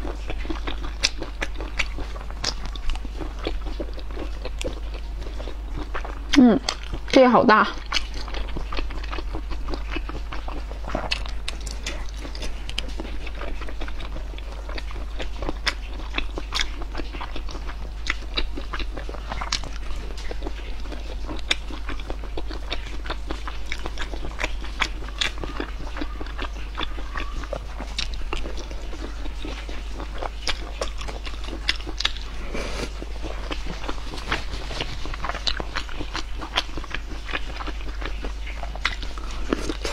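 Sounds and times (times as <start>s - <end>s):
chewing with crunches: 0.0s - 39.9s
steady low hum: 0.0s - 39.9s
wet mouth clicks: 29.5s - 39.9s.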